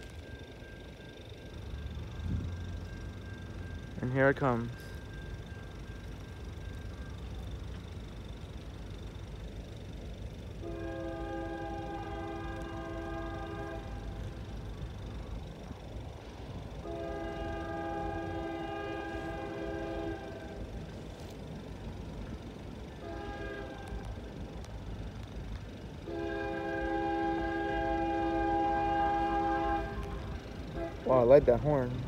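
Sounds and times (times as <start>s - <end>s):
passing train rumble: 0.0s - 32.0s
locomotive air horn blasts: 10.6s - 14.4s, 16.7s - 20.8s, 22.9s - 24.2s, 26.0s - 31.3s.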